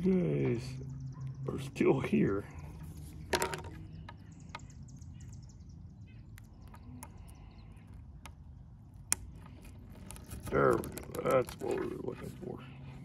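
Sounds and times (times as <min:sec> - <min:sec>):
faint bird chirps: 0:00.0 - 0:08.7
small ticks of handled rod pieces: 0:03.3 - 0:04.7.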